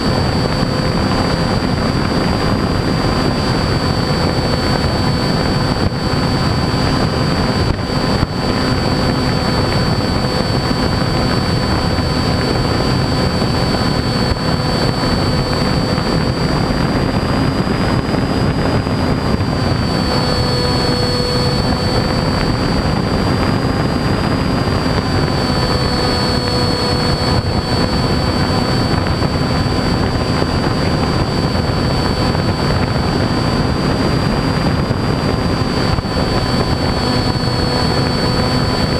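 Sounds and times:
model airplane motor whine: 0:00.0 - 0:38.9.

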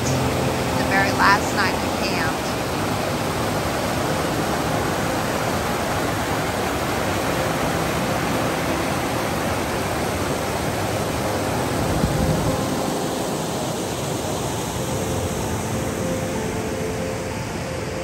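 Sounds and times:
river water rushing over rocks: 0:00.0 - 0:18.0.

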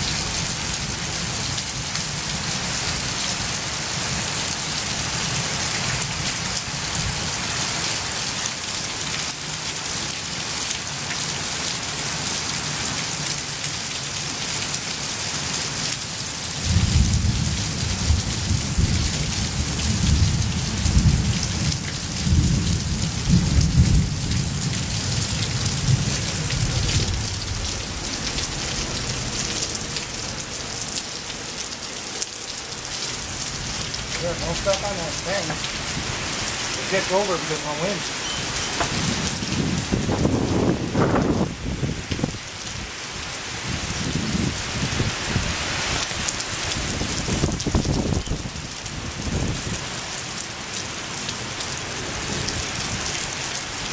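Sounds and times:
heavy rain pouring: 0:00.0 - 0:53.9
thunder rumbling: 0:16.7 - 0:29.4, 0:38.9 - 0:42.4.

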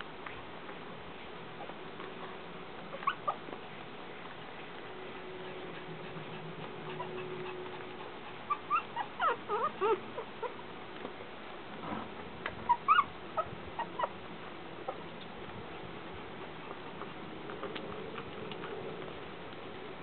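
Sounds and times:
puppies whimpering: 0:02.9 - 0:03.6, 0:04.5 - 0:10.6, 0:12.6 - 0:14.3.

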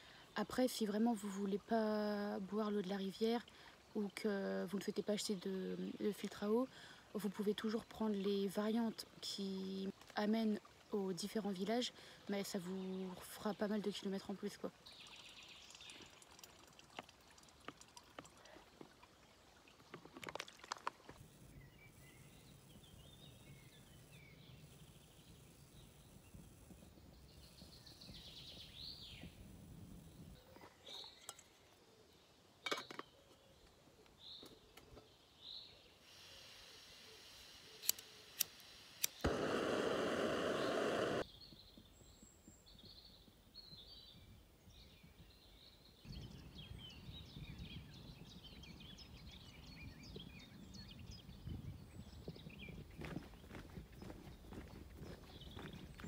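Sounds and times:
small birds chirping: 0:21.2 - 0:36.0, 0:37.1 - 0:56.0
sharp clicks: 0:37.8 - 0:41.2.

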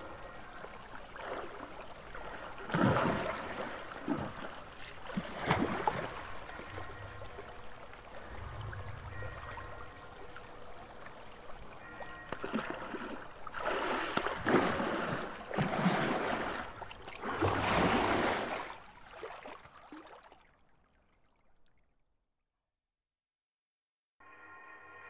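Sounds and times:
rushing water-like noise: 0:00.0 - 0:19.4
faint held tones: 0:06.4 - 0:12.4.

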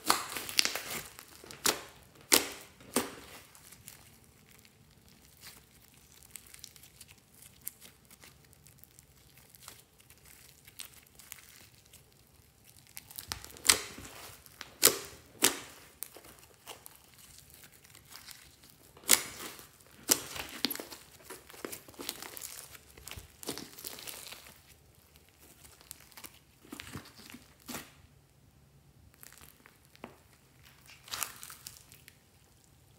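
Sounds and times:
slime sticky crackling: 0:00.0 - 0:28.1, 0:29.1 - 0:32.9
slime air pockets popping: 0:13.1 - 0:16.9, 0:18.8 - 0:24.6.

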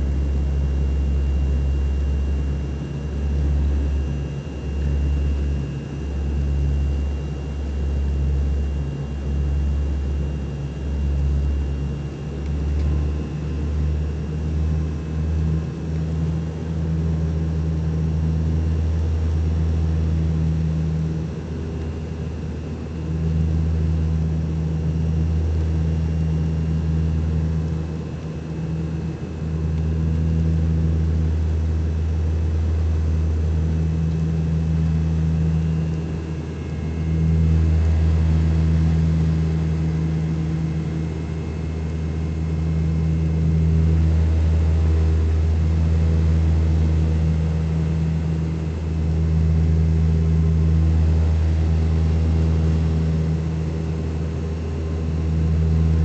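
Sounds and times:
turboprop engines droning: 0:00.0 - 0:56.0.

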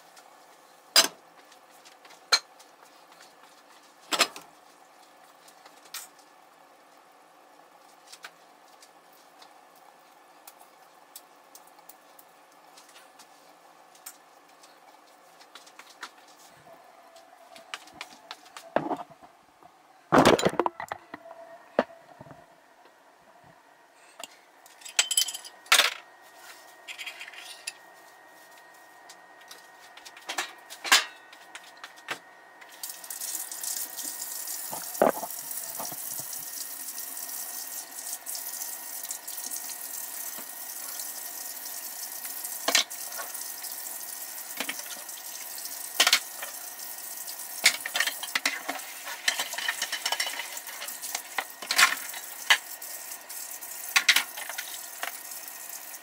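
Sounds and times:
dishes and glassware clinking: 0:24.8 - 0:25.6
tap water running into sink: 0:32.8 - 0:48.5, 0:50.4 - 0:56.0.

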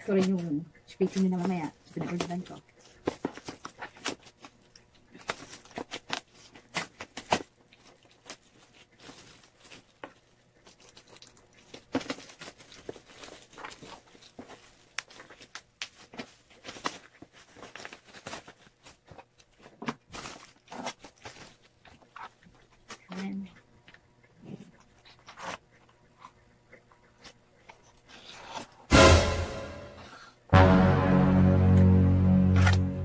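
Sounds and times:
bubble wrap crinkling: 0:00.0 - 0:23.4.

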